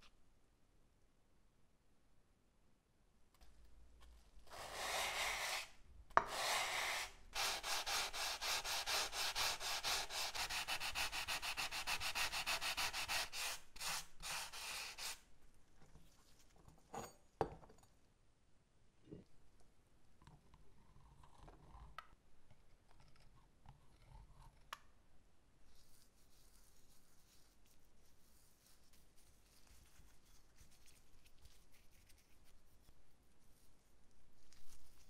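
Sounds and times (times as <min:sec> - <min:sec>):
sanding sponge scrubbing steel: 0:06.3 - 0:15.2.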